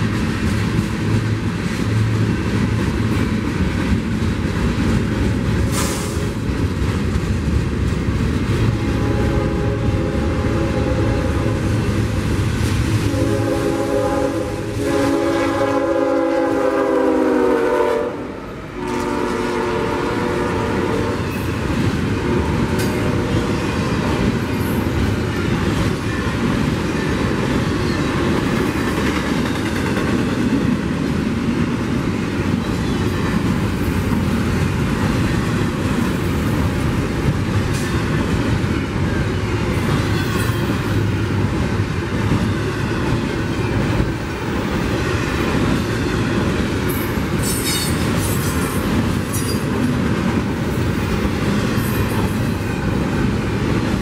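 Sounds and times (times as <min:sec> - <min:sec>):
train wheels rumbling and clacking: 0:00.0 - 0:54.0
locomotive horn: 0:08.8 - 0:11.9, 0:13.0 - 0:21.4, 0:22.1 - 0:23.4.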